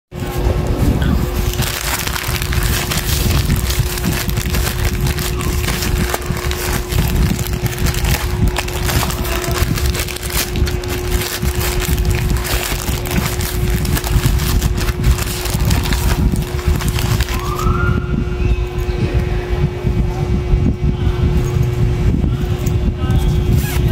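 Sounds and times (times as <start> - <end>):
steady low hum: 0.1 - 23.9
plastic bag crinkling: 1.0 - 17.7.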